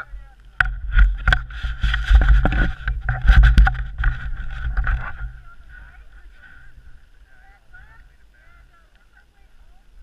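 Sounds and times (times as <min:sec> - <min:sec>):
camera handling rumble: 0:00.6 - 0:05.4
ski poles clattering: 0:00.7 - 0:06.6.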